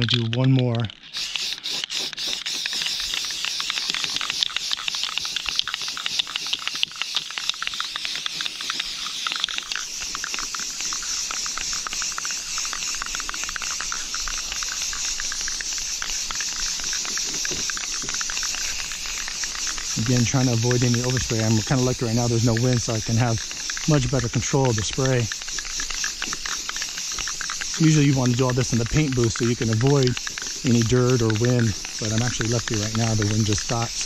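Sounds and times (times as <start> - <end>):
spray paint can hissing: 0.9 - 34.0.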